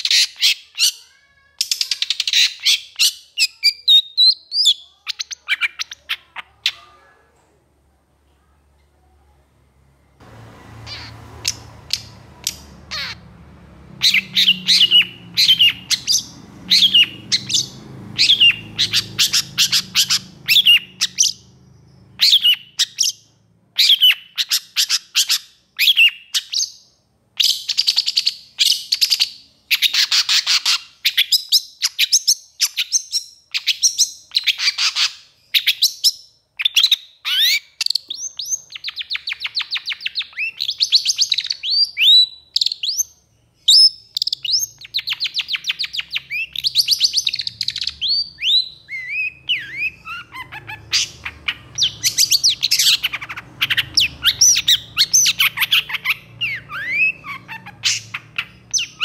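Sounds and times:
bird calling sharp notes: 0:10.6 - 0:21.5.

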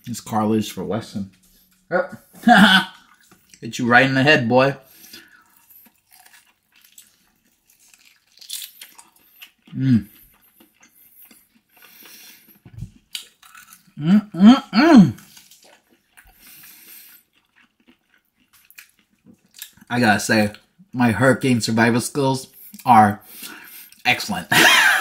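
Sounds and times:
chewing with small crunches: 0:01.3 - 0:03.7, 0:04.8 - 0:14.0, 0:15.1 - 0:21.0
person humming: 0:14.0 - 0:15.2.

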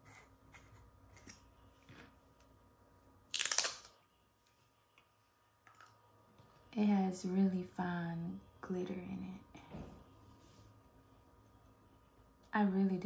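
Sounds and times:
crinkly seal ripping: 0:03.3 - 0:03.9.

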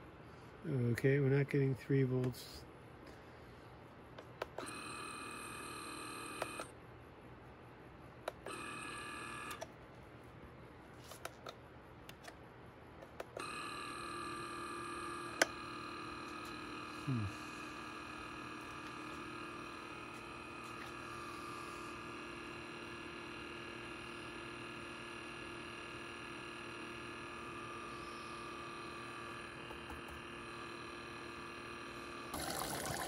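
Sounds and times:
coffee maker pump humming: 0:04.4 - 0:06.7, 0:08.3 - 0:09.6, 0:13.2 - 0:33.0.

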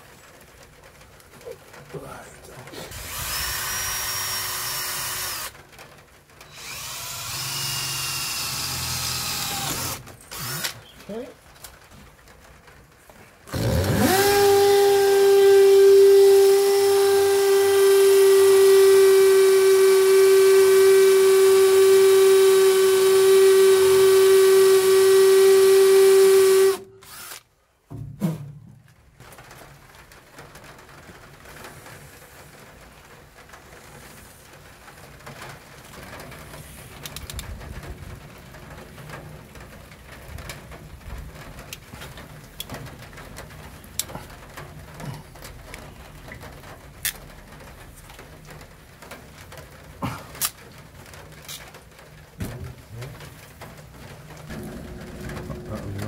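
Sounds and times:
cordless drill motor whining: 0:02.9 - 0:05.5, 0:06.5 - 0:10.8, 0:13.5 - 0:27.4
handling noise: 0:52.4 - 0:56.0.

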